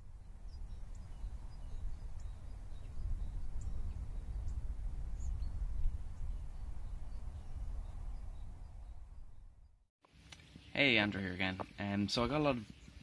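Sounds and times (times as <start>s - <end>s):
bird chirps: 0.0s - 9.8s, 12.4s - 13.0s
steady low rumble: 0.0s - 9.8s.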